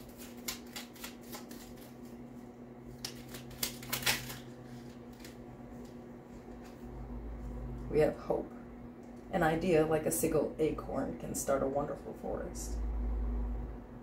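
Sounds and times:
cards being shuffled: 0:00.0 - 0:06.8.

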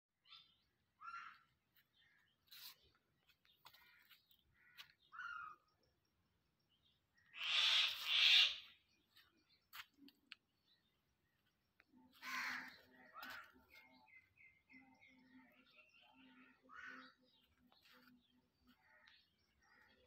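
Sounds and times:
birds calling: 0:00.2 - 0:05.8, 0:06.8 - 0:11.4, 0:12.1 - 0:20.0
harsh bird calls: 0:03.6 - 0:05.8, 0:07.2 - 0:09.2.

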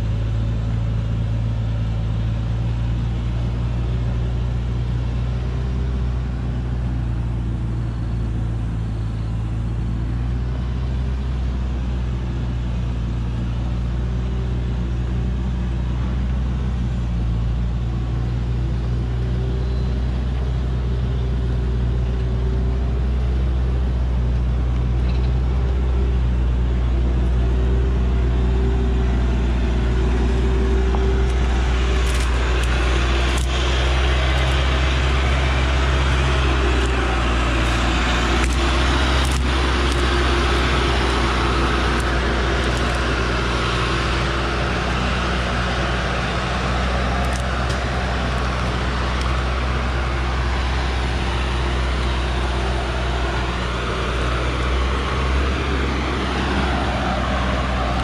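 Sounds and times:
truck diesel engine under load: 0:00.0 - 0:58.0
sharp cracks: 0:31.2 - 0:43.9.

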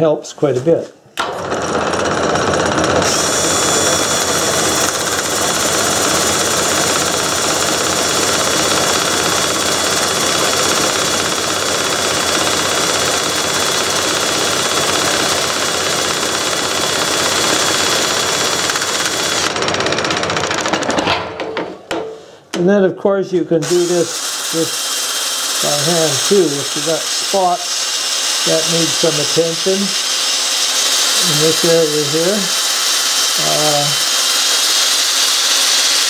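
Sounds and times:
wood lathe running: 0:01.2 - 0:21.0, 0:23.6 - 0:36.0
sanding rasp on wood: 0:23.7 - 0:36.0.

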